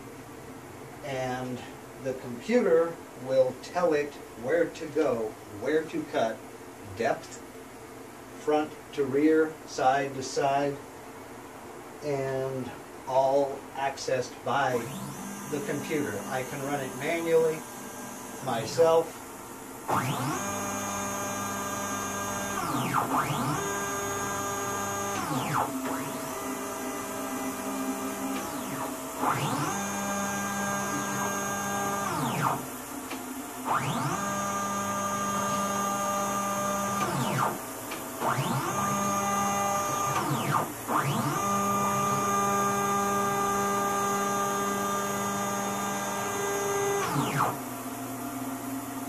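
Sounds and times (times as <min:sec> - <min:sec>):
stepper motors whining: 0:14.7 - 0:47.7.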